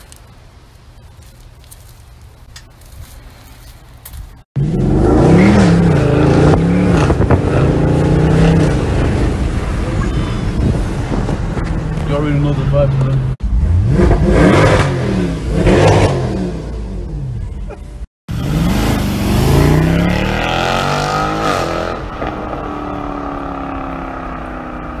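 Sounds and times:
car engine revving: 0:04.6 - 0:10.0, 0:18.3 - 0:25.0.

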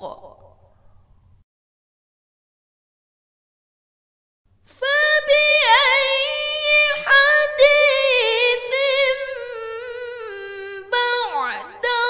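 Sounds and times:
woman chanting: 0:04.7 - 0:12.0.

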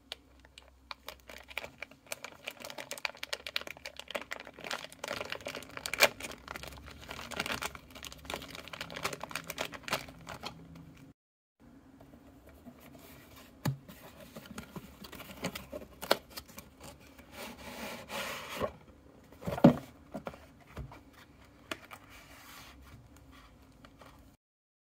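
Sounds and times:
plastic bag crinkling: 0:00.4 - 0:11.1
cardboard box rubbed and scraped: 0:17.3 - 0:18.7.

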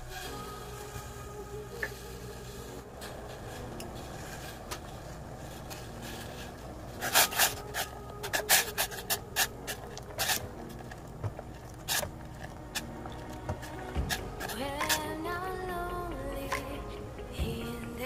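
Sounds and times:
metal ladle scraping a pot: 0:03.0 - 0:15.1.

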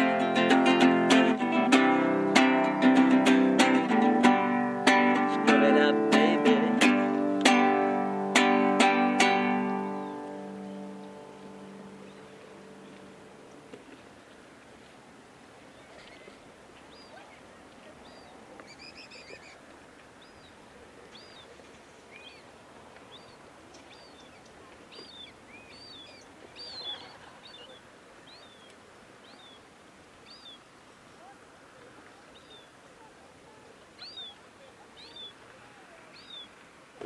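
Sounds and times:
faint birdsong chirps: 0:09.8 - 0:13.6, 0:15.6 - 0:36.7
bird warbling call: 0:18.0 - 0:19.6, 0:23.1 - 0:31.4, 0:32.2 - 0:36.6.

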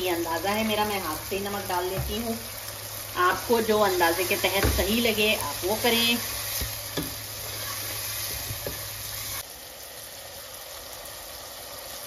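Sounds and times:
masala sizzling in oil: 0:00.0 - 0:12.0
spatula knocking in pot: 0:06.6 - 0:07.2.

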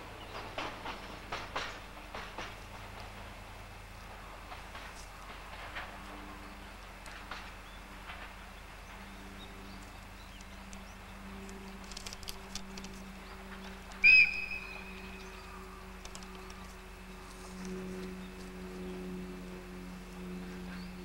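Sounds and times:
electric locomotive humming: 0:00.0 - 0:21.0
faint clicks: 0:04.5 - 0:14.1, 0:15.2 - 0:18.5
sharp high whistle blast: 0:14.0 - 0:14.8.

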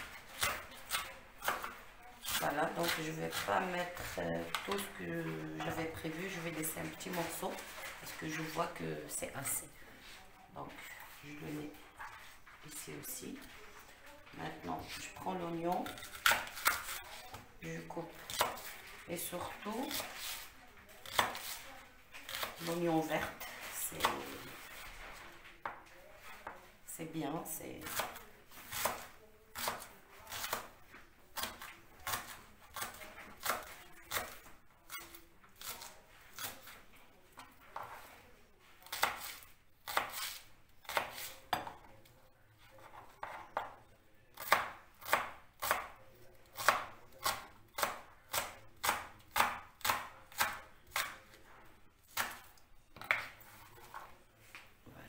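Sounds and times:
knife chopping on cutting board: 0:21.0 - 0:21.6, 0:38.8 - 0:41.7, 0:42.9 - 0:43.7, 0:44.4 - 0:45.9, 0:46.6 - 0:51.2.

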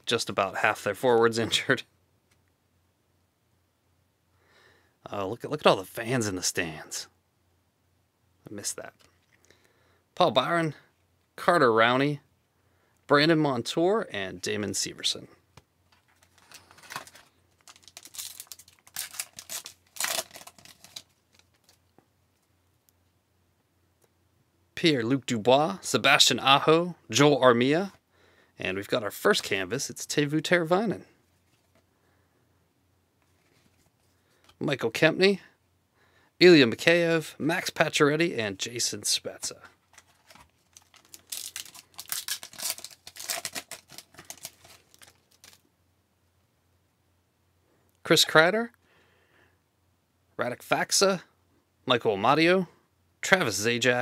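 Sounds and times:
cards being handled: 0:15.9 - 0:22.0, 0:39.7 - 0:45.6
wrapper crinkling and tearing: 0:16.1 - 0:21.9, 0:39.8 - 0:45.7.

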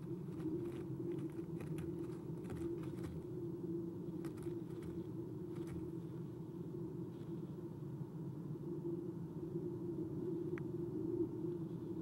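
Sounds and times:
talons scratching on wood: 0:00.0 - 0:03.3, 0:04.2 - 0:06.0
steady low hum: 0:00.0 - 0:12.0.

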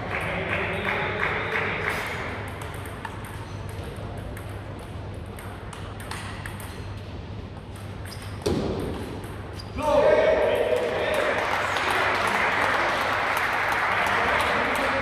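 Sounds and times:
table tennis ball clicking: 0:02.4 - 0:07.1.

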